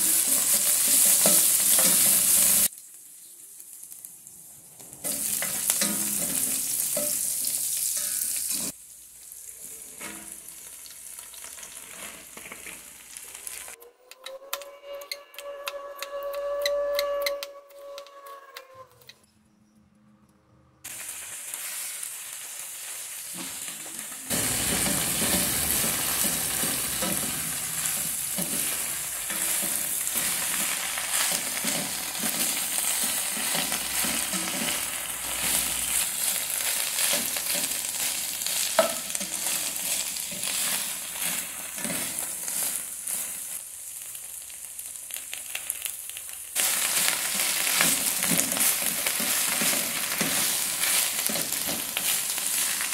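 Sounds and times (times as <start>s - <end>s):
spatula scraping a pan: 0.0s - 2.7s, 24.3s - 43.6s, 46.9s - 52.9s
vegetables sizzling in a pan: 0.0s - 13.8s, 20.9s - 52.9s.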